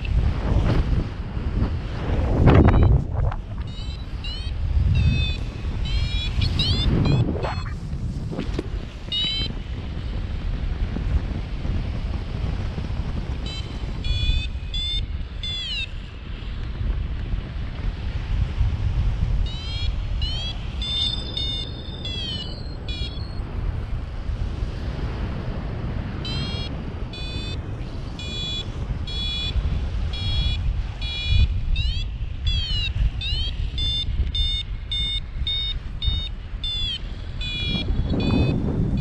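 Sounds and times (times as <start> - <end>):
wind rush on microphone: 0.0 - 39.0
variometer beeping high chirps: 2.6 - 3.0, 3.6 - 7.8, 9.0 - 9.6, 13.4 - 16.2, 19.4 - 23.5, 26.2 - 39.0.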